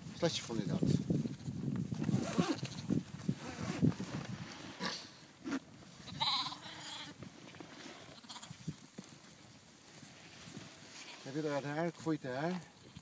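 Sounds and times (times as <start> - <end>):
rustles: 0.0 - 13.0
sheep bleating: 6.1 - 7.2.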